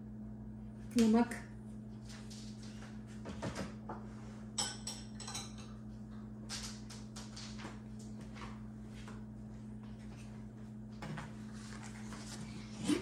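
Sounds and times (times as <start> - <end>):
steady low hum: 0.0 - 13.0
kitchenware clinking: 4.6 - 5.8.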